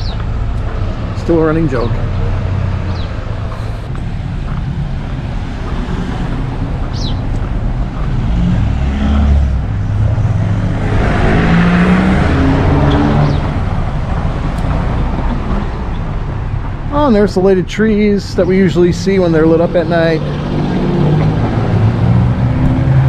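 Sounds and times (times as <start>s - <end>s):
car driving past: 4.8s - 16.0s.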